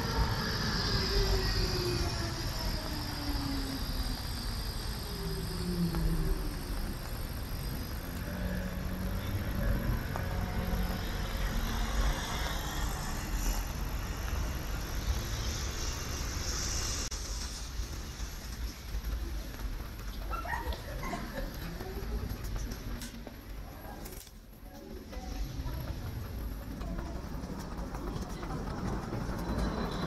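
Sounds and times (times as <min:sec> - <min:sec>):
traffic hiss: 0:00.0 - 0:20.1
electric tram drive whining: 0:00.0 - 0:30.0.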